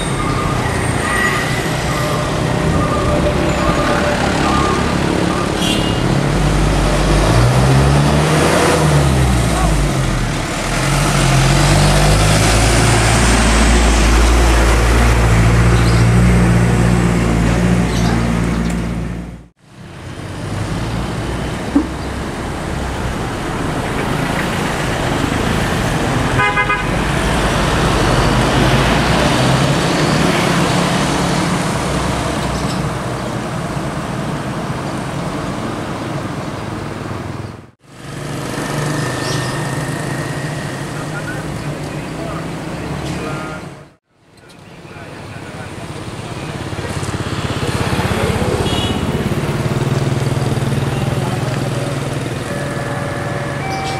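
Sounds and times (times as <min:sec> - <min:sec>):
bus diesel engine running: 0:00.0 - 0:29.9, 0:30.6 - 0:44.0, 0:44.9 - 0:53.9
passing road traffic: 0:00.0 - 0:53.9
pulsing horn toot: 0:26.3 - 0:27.1, 0:52.3 - 0:53.9.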